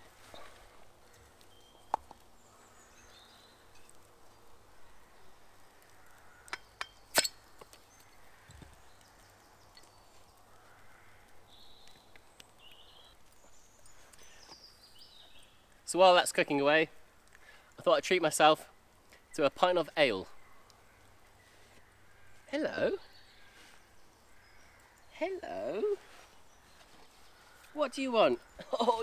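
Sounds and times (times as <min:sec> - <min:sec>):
bottle cap prised off: 0:06.8 - 0:07.4.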